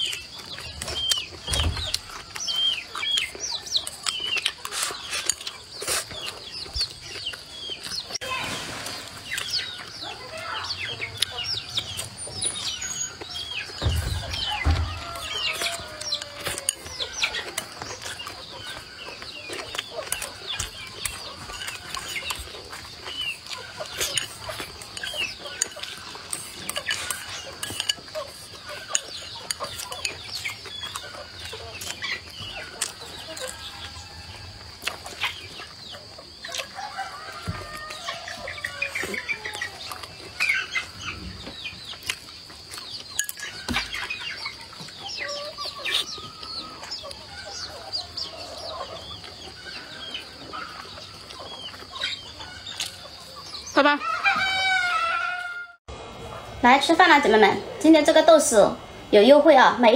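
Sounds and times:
clicks of eating: 0.0s - 8.2s, 12.9s - 34.0s, 34.6s - 35.7s, 37.8s - 40.8s, 41.9s - 47.2s, 48.8s - 53.3s
birds chirping: 0.0s - 59.9s
chickens clucking: 0.0s - 59.9s.

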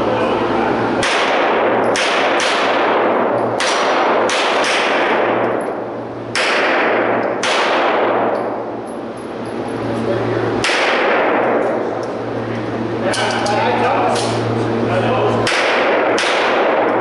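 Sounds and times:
pistol shots echoing indoors: 1.0s - 9.0s, 10.6s - 12.1s, 15.4s - 17.0s.

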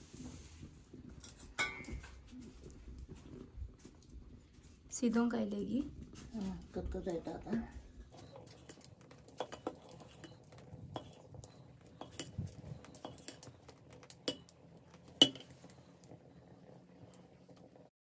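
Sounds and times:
ladle clinking in steel pot: 1.6s - 2.1s, 8.1s - 15.6s.

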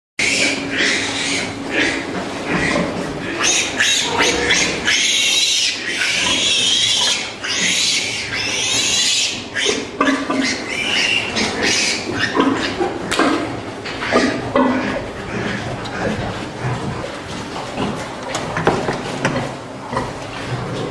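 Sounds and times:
piglets squealing: 0.2s - 12.8s
pig grunts: 0.2s - 20.9s.

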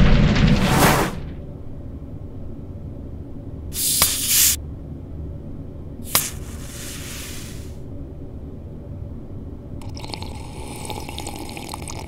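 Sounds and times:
gas hissing from bottle: 3.8s - 4.6s, 6.0s - 7.8s
carbonation fizzing: 9.8s - 12.0s.

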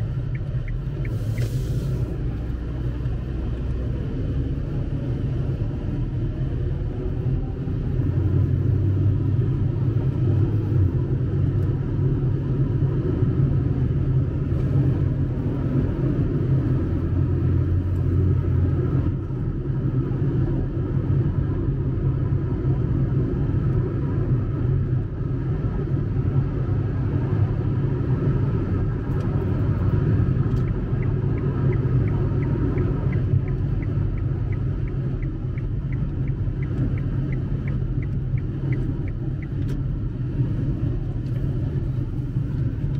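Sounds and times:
car driving on wet road: 0.0s - 42.9s
light even ticking: 30.5s - 39.8s.

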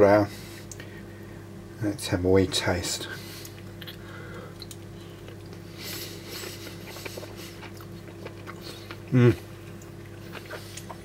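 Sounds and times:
low electrical hum: 0.0s - 11.0s
person chewing: 3.3s - 11.0s.

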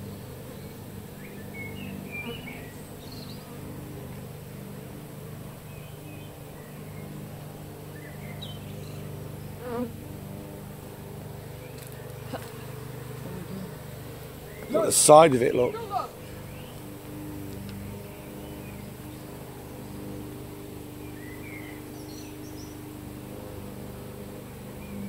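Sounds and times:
honeybees buzzing: 0.0s - 25.0s.

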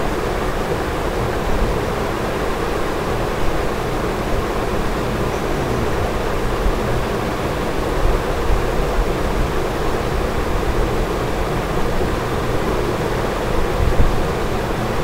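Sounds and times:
microphone hiss and room noise: 0.0s - 15.0s
low hum: 4.6s - 8.1s.

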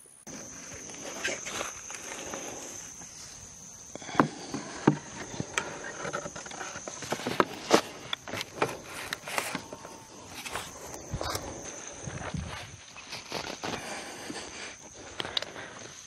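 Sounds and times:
high-pitched insect whine: 0.0s - 16.0s.

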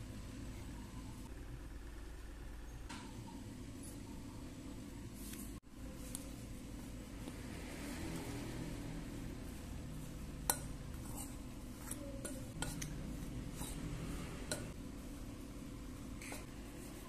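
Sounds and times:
steady low hum: 0.0s - 17.0s
fork stirring mashed potato: 8.1s - 17.0s.

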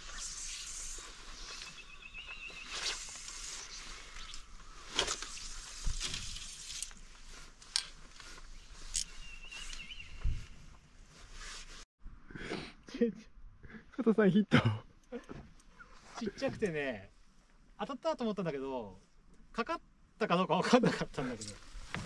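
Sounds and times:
soft outdoor hiss: 0.0s - 11.8s, 13.0s - 22.0s
fishing line handling sounds: 2.6s - 9.8s.

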